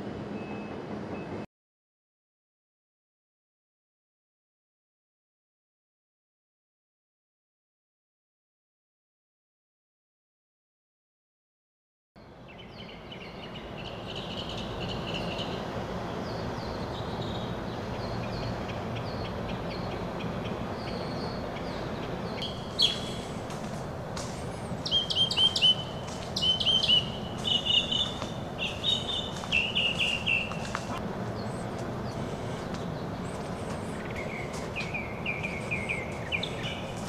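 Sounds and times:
background hum: 12.2s - 37.0s
birds chirping and singing: 12.2s - 37.0s.

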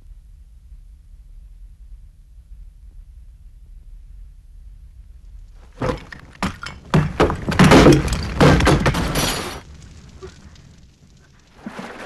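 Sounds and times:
low rumble: 0.0s - 5.7s
crashes and breaking: 5.7s - 12.0s.

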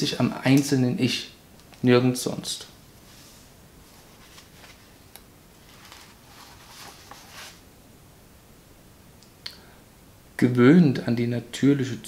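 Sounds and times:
book pages rustling: 3.0s - 7.6s.

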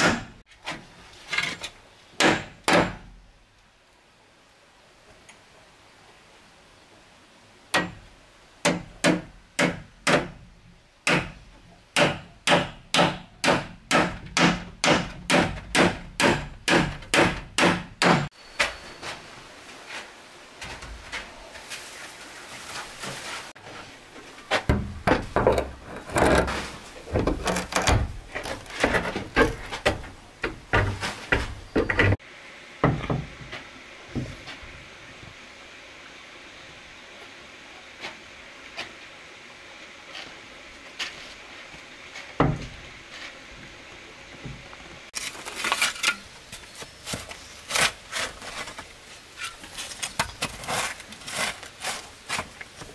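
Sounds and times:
hammer driving nails into wood: 12.0s - 18.3s.

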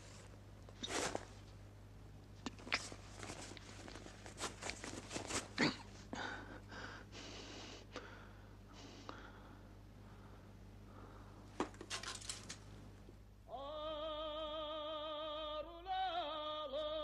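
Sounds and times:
low steady hum: 0.0s - 17.0s
rustles and small clicks: 2.4s - 5.6s, 11.6s - 12.7s
soft breaths: 2.6s - 11.5s.

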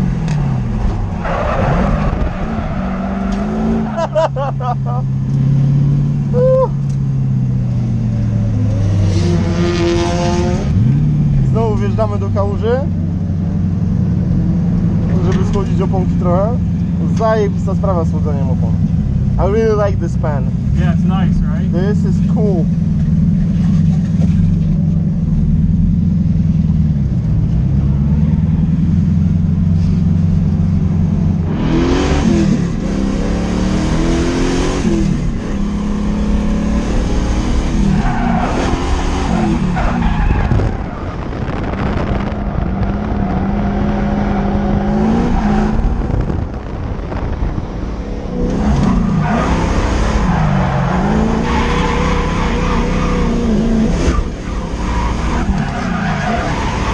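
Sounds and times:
tyres skidding and squealing: 0.0s - 7.2s, 28.1s - 56.9s
car engine revving: 0.0s - 56.9s.

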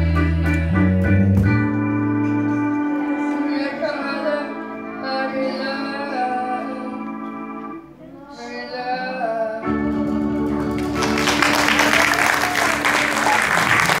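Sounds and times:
woman singing: 0.0s - 1.3s, 3.2s - 7.2s, 8.0s - 9.9s
keyboard accompaniment: 0.0s - 14.0s
audience applause: 10.7s - 14.0s.

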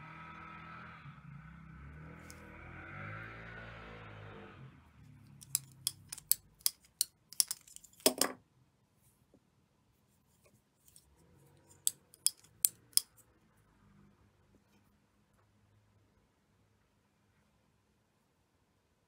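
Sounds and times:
plastic shuttle clicking and ticking: 5.3s - 8.2s, 11.8s - 13.2s
thread scraping: 5.3s - 8.3s, 10.4s - 13.2s.

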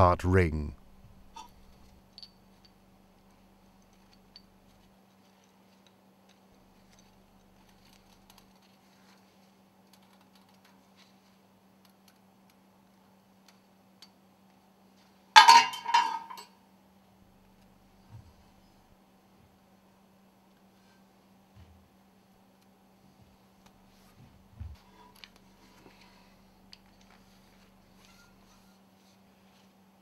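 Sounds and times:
steady low hum: 0.0s - 5.4s, 16.7s - 30.0s
small steel parts ticking: 1.3s - 4.8s.

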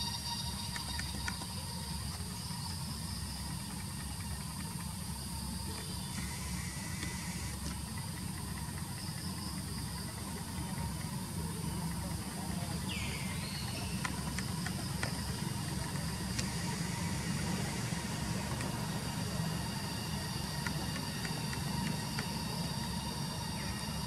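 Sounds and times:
insect drone: 0.0s - 24.0s.

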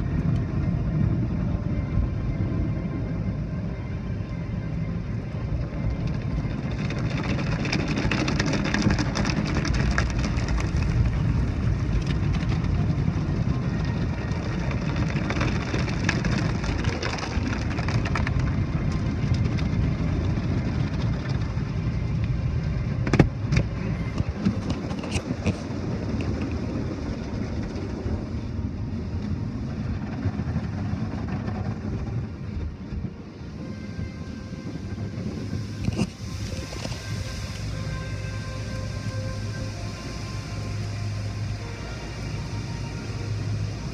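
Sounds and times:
water jets spraying: 35.6s - 43.9s.

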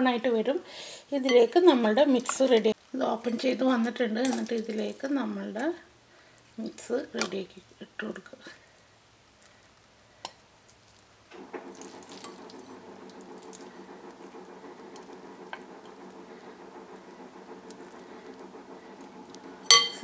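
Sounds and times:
steady hum: 11.2s - 20.0s
spoon clicking: 19.7s - 20.0s.

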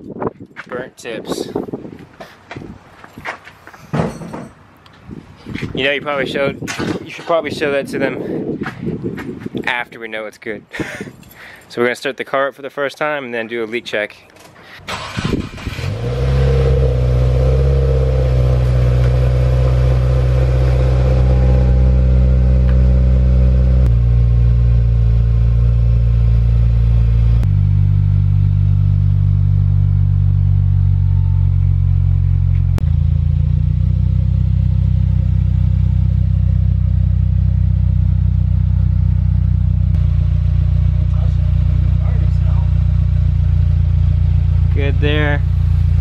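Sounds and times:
car engine idling: 14.9s - 46.0s.

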